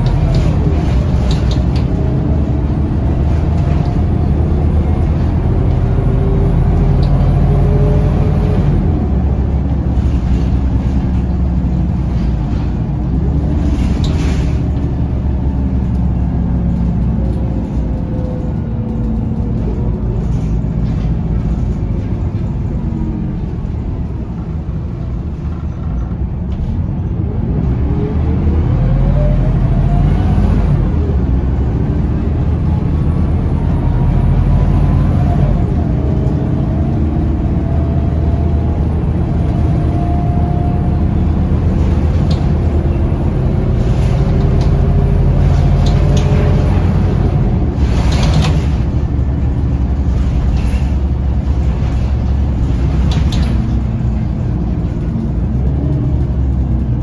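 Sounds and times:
diesel bus pulling away: 0:00.0 - 0:57.0.

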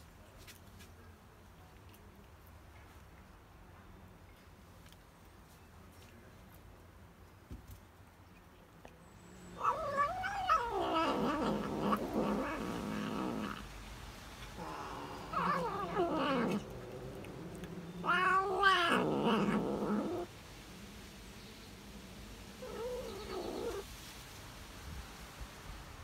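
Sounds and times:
cat moaning calls: 0:09.6 - 0:13.7, 0:14.5 - 0:20.3, 0:22.6 - 0:23.8.

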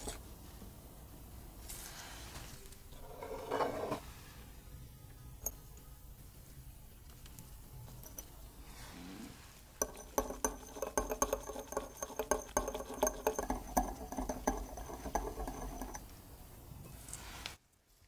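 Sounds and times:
whisk clicking against glass bowl: 0:09.8 - 0:16.1.

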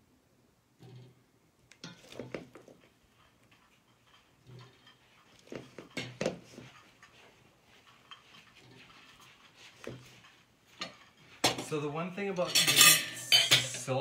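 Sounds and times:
kitchenware knocking and clattering: 0:01.8 - 0:07.2, 0:07.9 - 0:11.8, 0:12.4 - 0:13.9.

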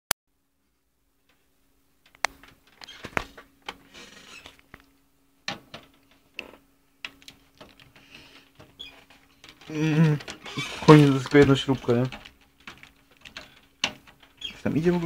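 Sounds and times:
faint steady hum: 0:00.3 - 0:15.0
rustling and scraping: 0:01.2 - 0:15.0
metal computer case clicks and knocks: 0:05.5 - 0:08.0, 0:08.6 - 0:15.0.

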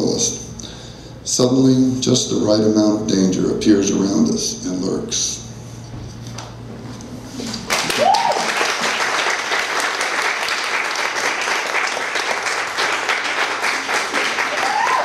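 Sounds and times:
audience applauding: 0:07.6 - 0:15.0.

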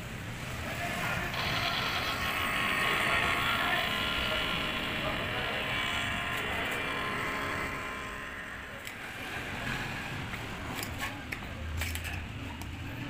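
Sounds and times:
small electric motor whirring: 0:01.2 - 0:09.7.

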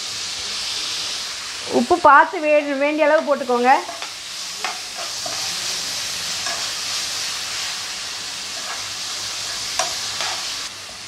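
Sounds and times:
vegetables sizzling in oil: 0:00.0 - 0:11.0
spoon scraping while stirring: 0:08.6 - 0:10.6.

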